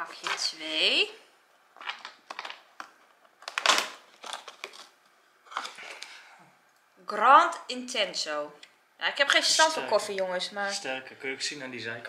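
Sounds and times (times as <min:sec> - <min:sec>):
cardboard tearing and crinkling: 0:01.8 - 0:06.0.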